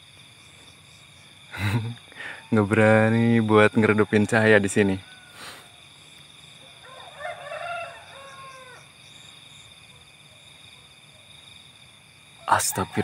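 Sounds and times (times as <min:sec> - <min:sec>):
crickets trilling: 0:00.0 - 0:13.0
rooster crowing: 0:04.0 - 0:06.0, 0:06.6 - 0:09.2.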